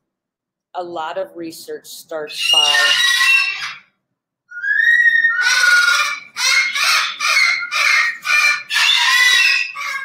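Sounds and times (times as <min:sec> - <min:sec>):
parrot screaming: 0:02.4 - 0:03.9, 0:04.5 - 0:10.0.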